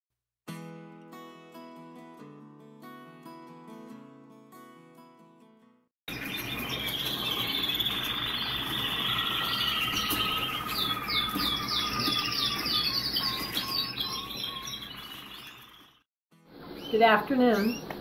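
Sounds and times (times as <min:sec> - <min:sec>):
canaries singing: 0:06.1 - 0:16.0, 0:16.6 - 0:18.0.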